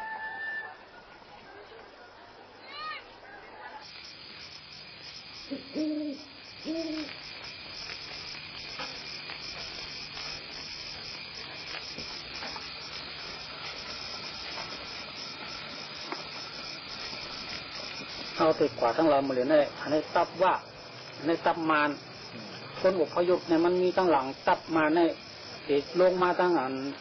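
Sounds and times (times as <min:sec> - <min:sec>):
night insects chirping: 0:00.0 - 0:27.0
owl hooting: 0:05.4 - 0:07.2.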